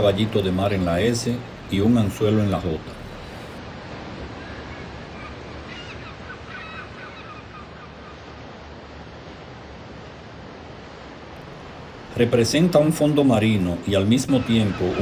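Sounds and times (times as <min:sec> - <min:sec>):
sea surf washing: 0:00.0 - 0:15.0
faint high calls: 0:04.3 - 0:08.3.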